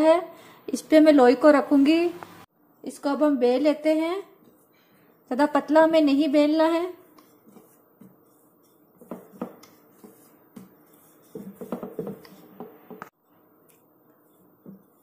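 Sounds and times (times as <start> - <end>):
rolling pin clattering on marble board: 11.4 - 13.1.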